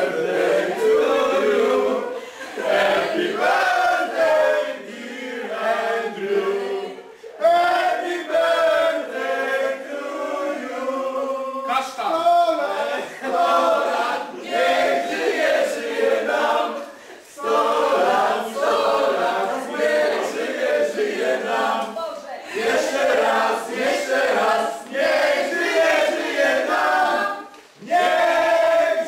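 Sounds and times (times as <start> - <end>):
mixed choir singing: 0.0 - 11.8, 12.6 - 29.0.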